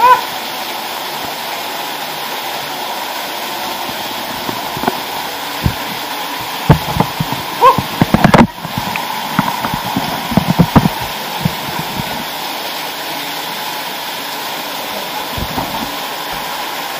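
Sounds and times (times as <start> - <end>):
waterfall splashing into pool: 0.0 - 16.9
water hitting camera: 3.5 - 12.5, 15.1 - 16.9.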